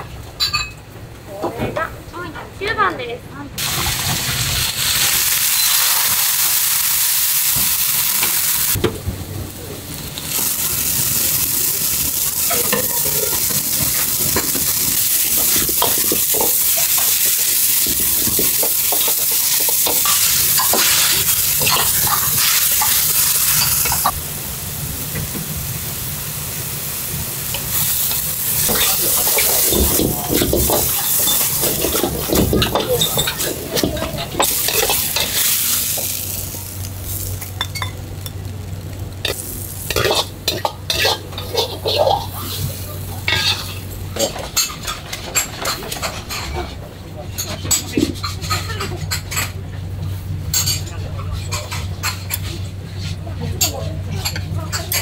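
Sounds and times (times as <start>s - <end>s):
vegetables sizzling in a wok: 3.6s - 46.7s
metal ladle scraping a wok: 27.5s - 36.3s.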